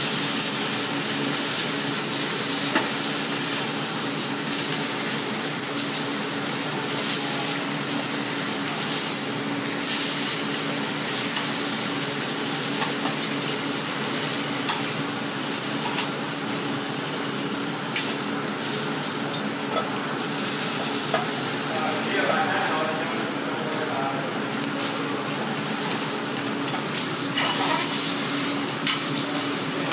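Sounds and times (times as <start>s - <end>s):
meat sizzling in skillet: 0.0s - 29.9s.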